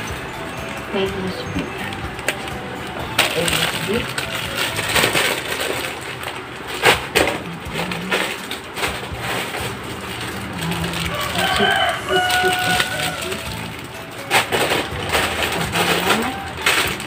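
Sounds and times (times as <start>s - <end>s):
plastic packaging crinkling: 0.0s - 17.0s
rooster crowing: 10.7s - 13.6s.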